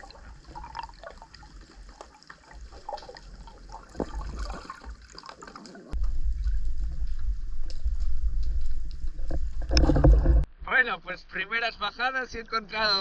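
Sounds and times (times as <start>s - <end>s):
water churning rumble: 0.0s - 7.5s
underwater crackling and bubbling: 0.0s - 10.5s.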